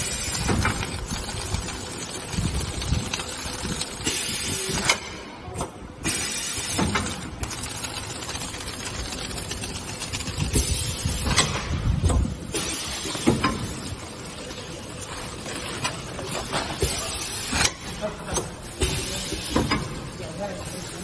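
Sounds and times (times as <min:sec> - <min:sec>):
packaging machine running: 0:00.0 - 0:21.0.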